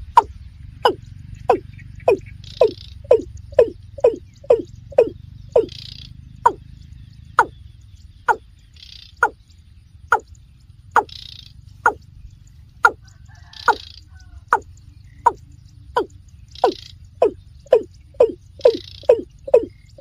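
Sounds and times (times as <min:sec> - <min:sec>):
bird calling: 0:00.0 - 0:20.0.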